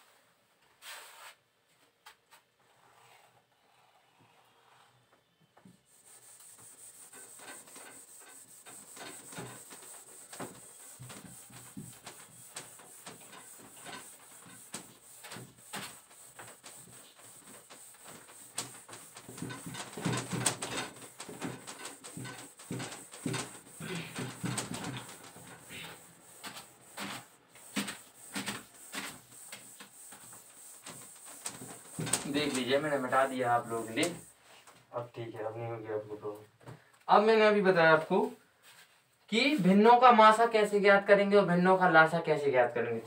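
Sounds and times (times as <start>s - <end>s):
duster scrubbing whiteboard: 5.8s - 34.4s.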